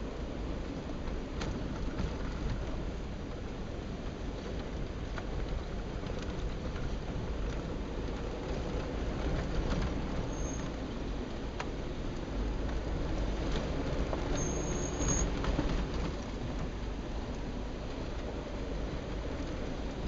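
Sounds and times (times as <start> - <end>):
engine and tyre rumble: 0.0 - 20.0
brief high squeaks: 10.3 - 10.8, 14.3 - 15.4.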